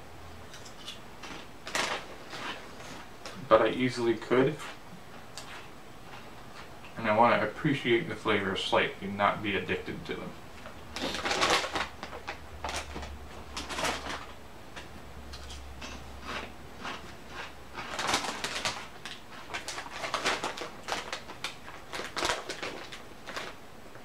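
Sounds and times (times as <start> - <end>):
chip bags crinkling: 0.5 - 4.8, 10.9 - 24.0.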